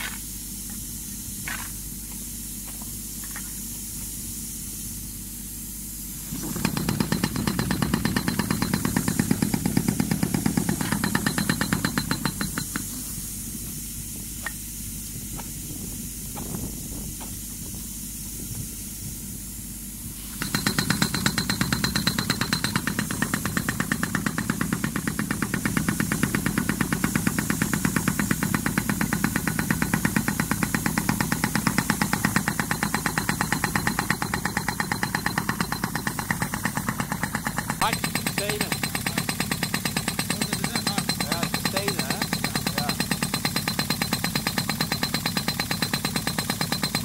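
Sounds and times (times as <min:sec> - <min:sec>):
pneumatic mole hammering: 0:00.0 - 0:04.2, 0:05.8 - 0:19.0, 0:20.0 - 0:47.0
steady hiss: 0:00.0 - 0:24.2.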